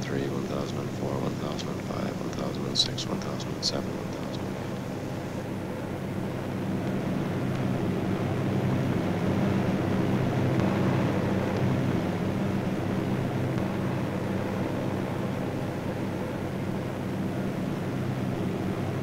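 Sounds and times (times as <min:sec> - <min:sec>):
aircraft engines droning: 0:00.0 - 0:19.0.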